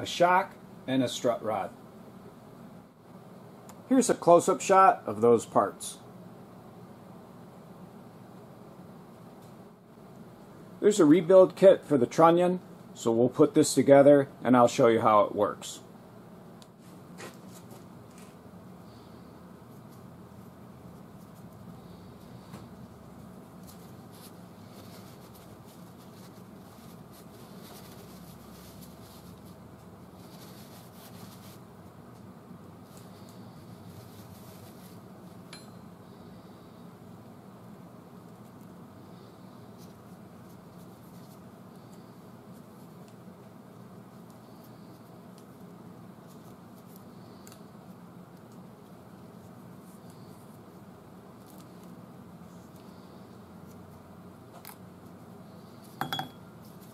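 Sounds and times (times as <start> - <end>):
steady low hum: 0.0 - 56.9
paper towel rubbing: 23.1 - 32.2, 32.8 - 35.4.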